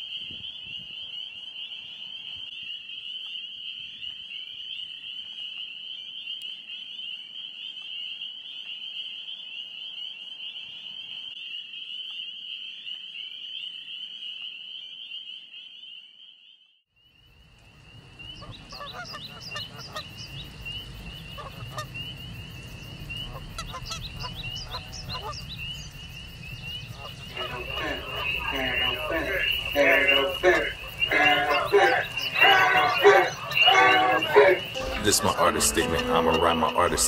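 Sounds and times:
short honking calls: 27.3s - 37.0s
high-pitched trill: 34.6s - 37.0s.

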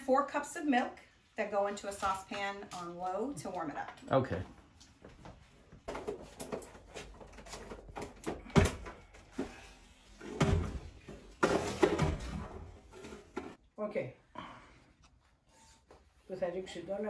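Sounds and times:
kitchen knocks and bangs: 10.2s - 12.7s.

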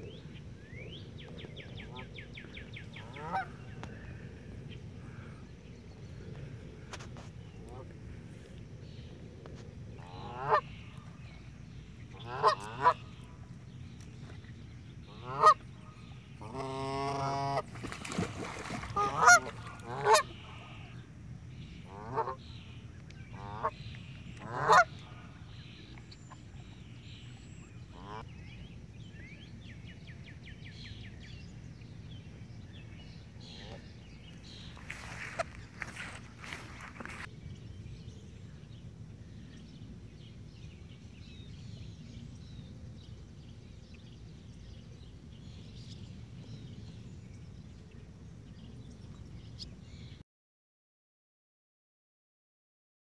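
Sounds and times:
geese honking: 3.0s - 3.6s, 10.0s - 10.7s, 12.2s - 13.0s, 15.1s - 15.6s, 16.4s - 17.7s, 18.6s - 20.9s, 21.9s - 22.4s, 24.4s - 25.2s.

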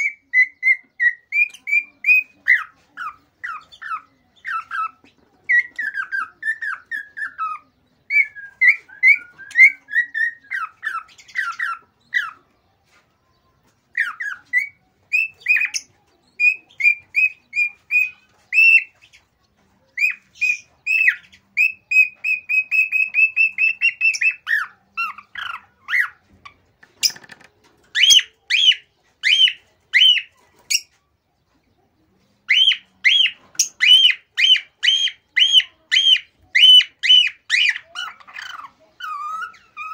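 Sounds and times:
bird chirping and whistling: 5.6s - 12.4s, 14.0s - 19.0s, 20.0s - 26.2s, 28.0s - 30.9s, 32.5s - 39.9s.

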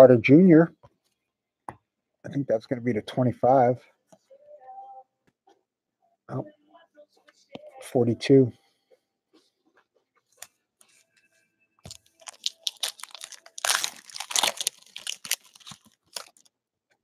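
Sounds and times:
foil wrapper tearing and crinkling: 11.9s - 16.5s.

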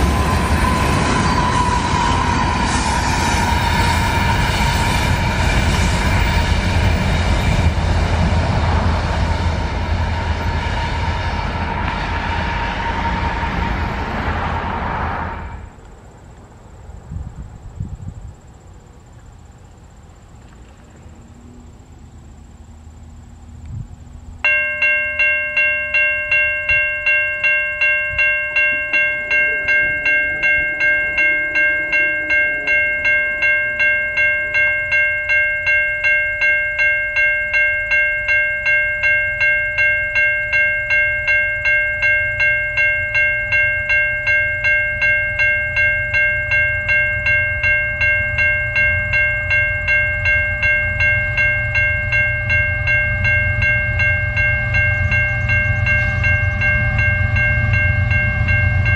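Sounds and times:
crossing warning bell ringing: 0.0s - 15.8s, 24.4s - 58.9s
diesel locomotive rumble: 0.0s - 16.0s, 36.8s - 58.9s.

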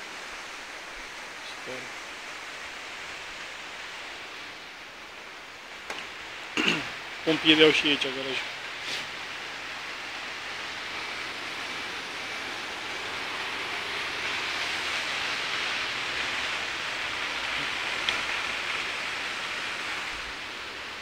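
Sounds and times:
rushing town noise: 5.1s - 21.0s.

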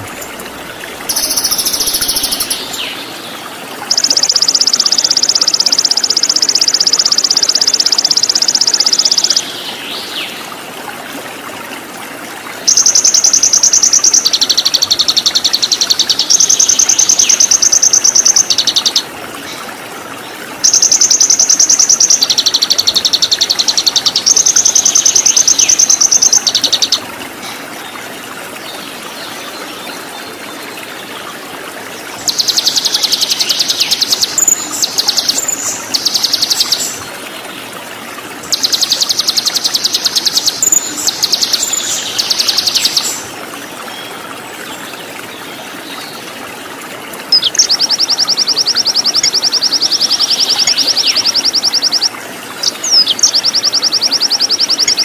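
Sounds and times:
stream water rushing: 0.0s - 55.0s
songbird high trills: 1.1s - 2.9s.

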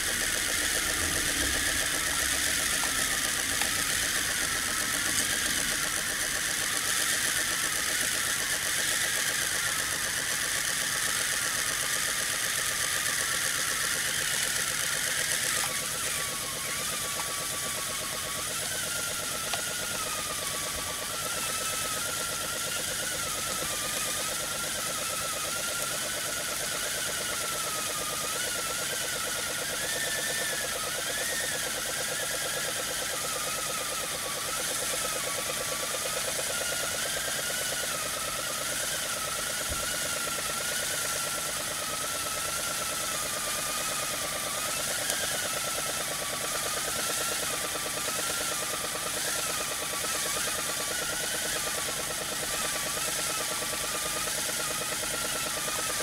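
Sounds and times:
fast even pulsing: 0.0s - 11.6s
steam hissing: 0.0s - 25.9s.

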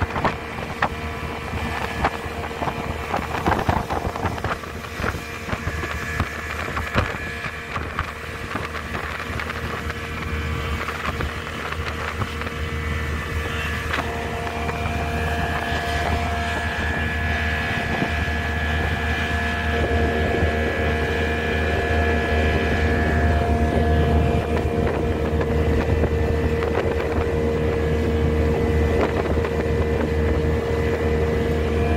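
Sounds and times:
boat engine droning: 0.0s - 31.9s
water rushing: 0.0s - 31.9s
wind on microphone: 0.0s - 31.9s.

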